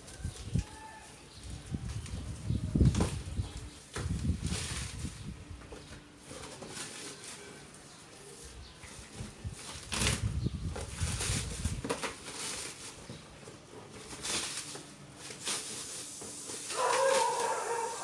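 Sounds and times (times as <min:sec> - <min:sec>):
plastic wrap crinkling: 0:00.0 - 0:18.0.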